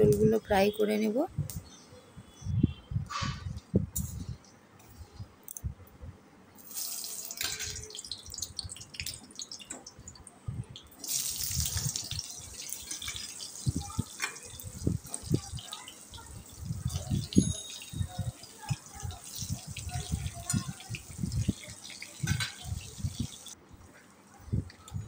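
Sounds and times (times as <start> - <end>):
seeds sizzling in hot oil: 6.6 - 9.7, 11.0 - 23.6.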